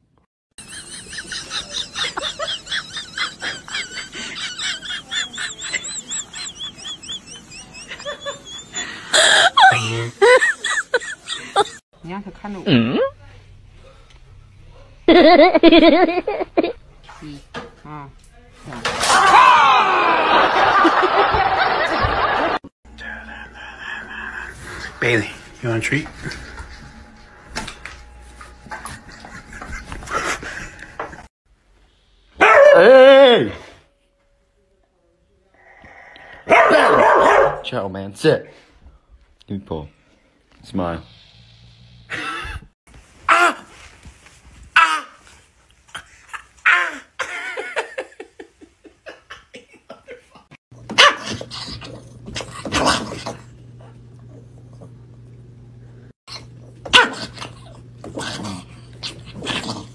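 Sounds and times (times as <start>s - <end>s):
man laughing and crying out: 0.8s - 11.8s, 19.1s - 22.6s
small dog barking: 32.4s - 33.1s, 36.5s - 37.6s, 50.9s - 51.4s, 56.9s - 57.4s.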